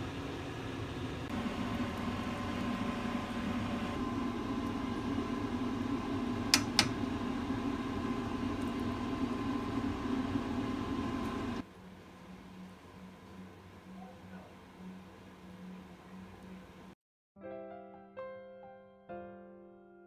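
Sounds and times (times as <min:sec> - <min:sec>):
kitchen appliance humming: 0:00.0 - 0:13.7.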